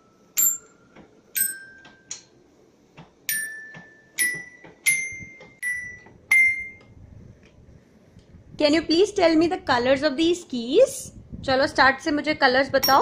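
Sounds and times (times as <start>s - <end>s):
toy xylophone piano notes: 1.4s - 1.9s, 3.3s - 6.8s.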